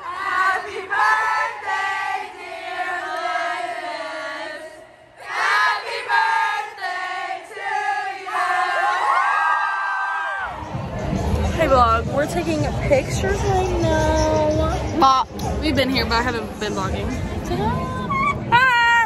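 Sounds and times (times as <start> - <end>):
women singing together: 0.0 - 9.3.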